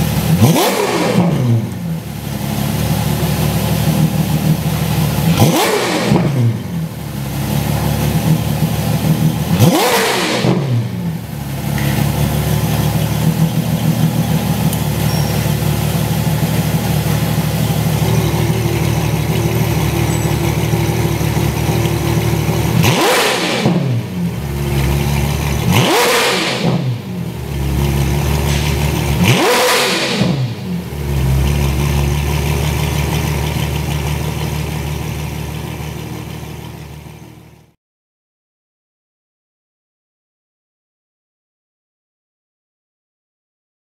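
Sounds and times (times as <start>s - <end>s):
car engine revving: 0.0s - 36.6s
car engine idling: 1.5s - 9.8s, 10.4s - 29.6s, 30.2s - 37.7s.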